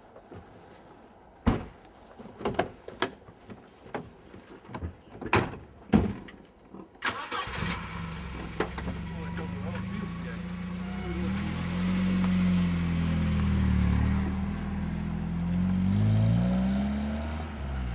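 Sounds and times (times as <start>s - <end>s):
car engine starting and idling: 7.0s - 17.9s.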